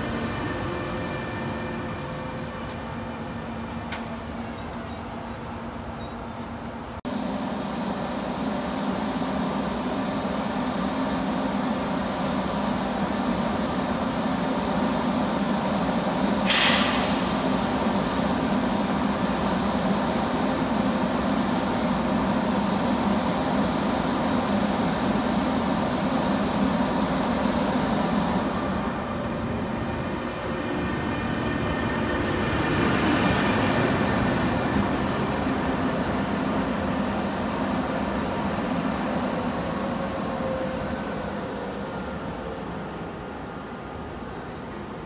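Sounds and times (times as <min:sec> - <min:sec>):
electric locomotive rolling past: 0:00.0 - 0:45.0
locomotive humming with fans: 0:00.0 - 0:45.0
hiss of released air: 0:16.0 - 0:28.7.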